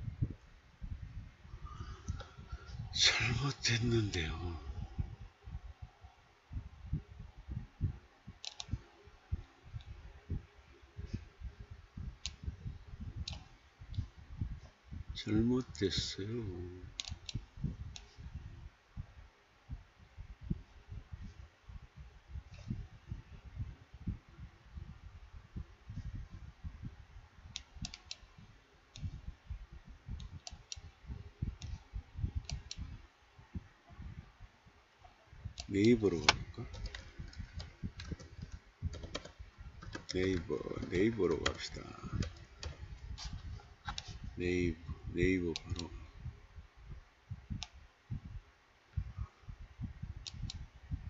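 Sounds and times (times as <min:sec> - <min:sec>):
computer keys and mouse clicking: 0:08.4 - 0:08.8, 0:13.2 - 0:14.0, 0:17.0 - 0:18.1, 0:27.5 - 0:28.3, 0:32.4 - 0:32.9, 0:35.6 - 0:44.1.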